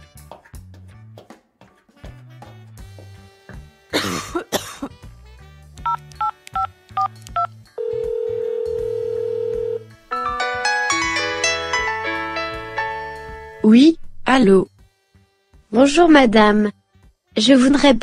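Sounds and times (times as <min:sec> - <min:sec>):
light background music: 0:00.0 - 0:18.0
person coughing: 0:03.9 - 0:05.0
phone keypad tones beeping: 0:05.9 - 0:09.8
phone ringing tone: 0:05.9 - 0:09.9.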